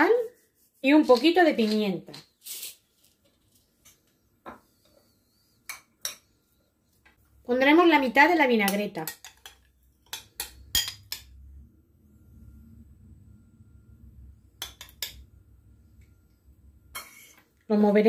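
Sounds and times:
metal spoon clinking on ceramic bowl: 8.7 - 11.4, 14.6 - 15.2.

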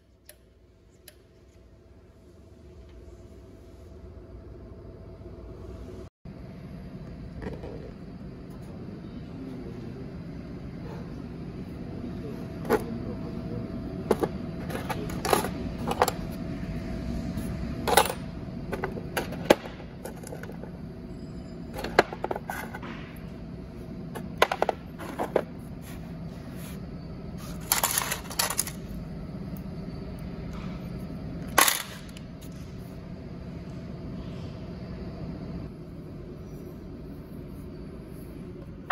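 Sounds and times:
steady low hum: 0.0 - 38.9
metal parts clinking: 27.5 - 28.9.

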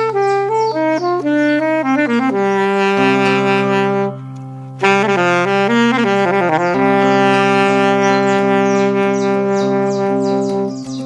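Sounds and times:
low backing drone: 0.0 - 11.0
saxophone melody: 0.0 - 11.0
high bird chirps: 0.1 - 1.3, 7.1 - 11.0.

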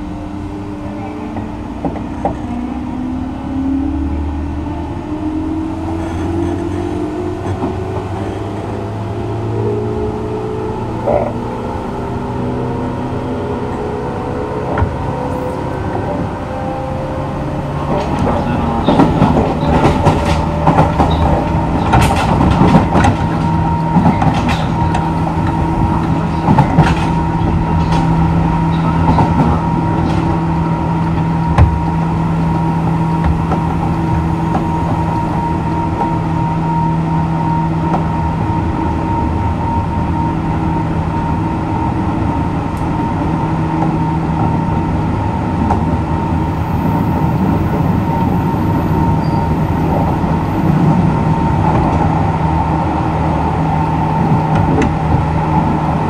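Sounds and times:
train motor whine: 0.0 - 42.0
train running hum: 0.0 - 56.0
wheels clacking over rail joints: 17.7 - 36.1.

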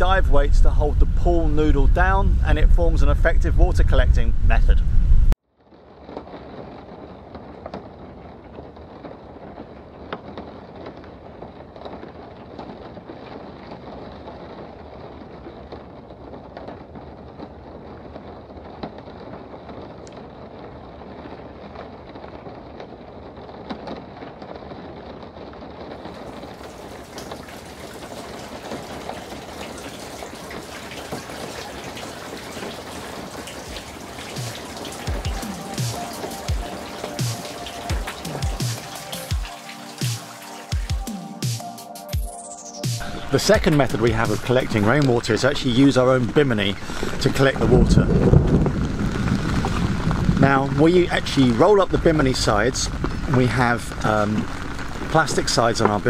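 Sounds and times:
rain falling on boat deck: 0.0 - 56.0
rainwater running into tank filler: 26.0 - 56.0.

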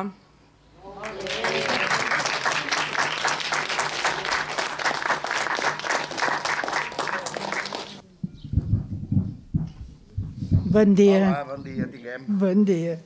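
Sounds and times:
audience applauding: 0.8 - 8.0.

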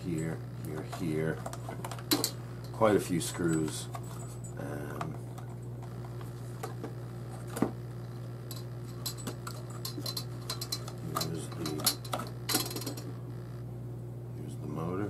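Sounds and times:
steady low hum: 0.0 - 15.0
plastic parts clicking and rattling: 9.0 - 13.1.

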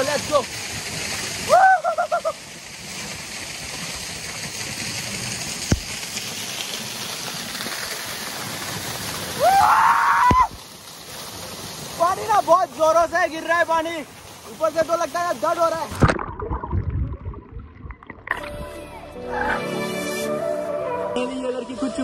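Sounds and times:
waterfall rushing: 0.0 - 16.1.

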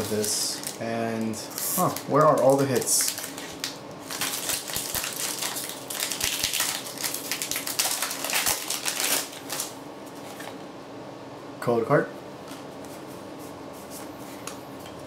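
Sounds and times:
foil wrapper crinkling and tearing: 0.0 - 10.5.

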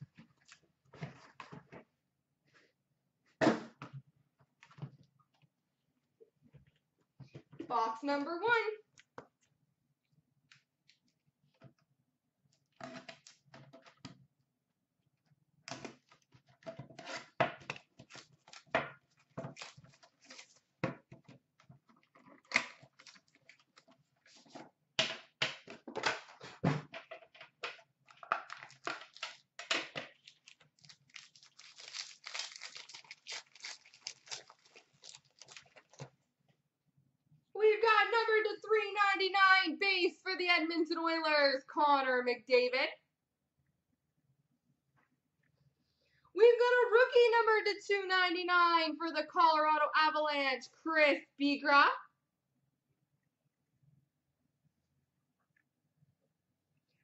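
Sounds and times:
foil wrapper crinkling: 18.1 - 20.7, 28.4 - 29.4, 30.1 - 36.1.

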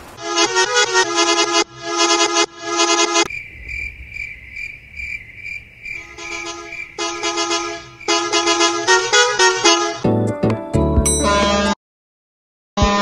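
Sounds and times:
multi-tone bus horn: 0.1 - 3.3, 6.0 - 10.3, 11.2 - 11.8, 12.8 - 13.0
crickets chirping: 3.2 - 9.6
low rumble: 3.3 - 8.1.

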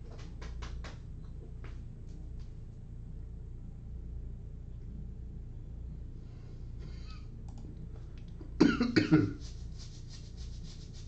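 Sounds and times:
person coughing: 8.6 - 9.4.

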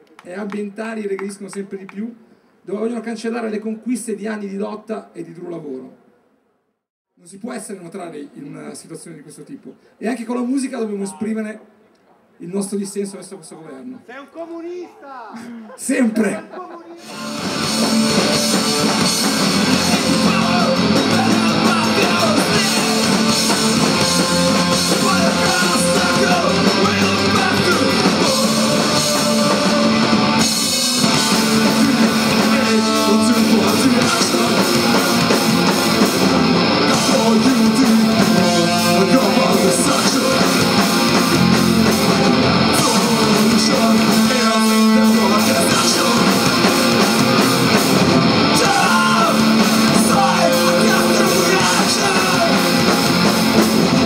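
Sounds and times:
person singing: 17.0 - 36.1, 36.8 - 47.1, 48.4 - 53.0
electric guitar: 17.0 - 54.0
live rock band playing: 17.0 - 54.0.

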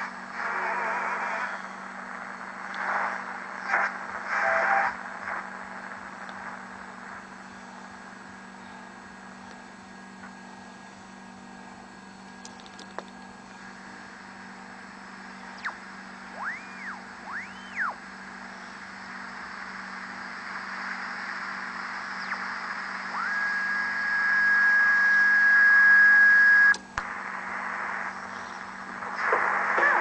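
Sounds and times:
radio tuning whistles: 0.0 - 6.6, 15.2 - 30.0
radio static hiss: 0.0 - 30.0
low hum: 13.1 - 30.0.

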